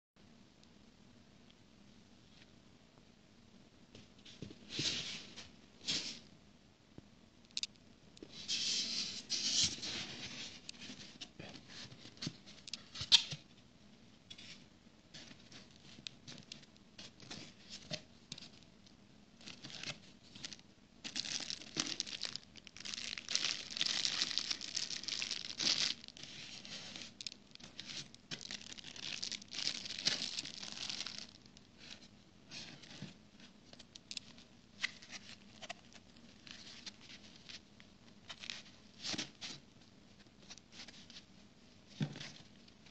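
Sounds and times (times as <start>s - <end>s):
plastic wrapping crinkling: 19.4s - 32.1s.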